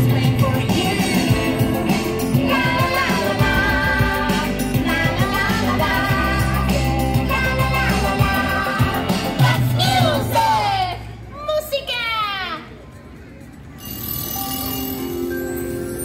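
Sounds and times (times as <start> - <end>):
band with bass and beat: 0.0 - 10.4
person singing show song: 0.0 - 11.0.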